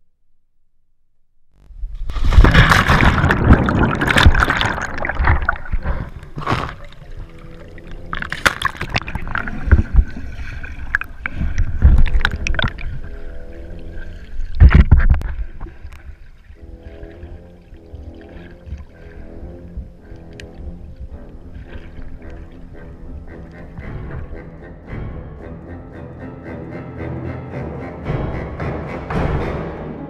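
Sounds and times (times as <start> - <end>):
water sloshing and splashing: 1.9 - 24.3.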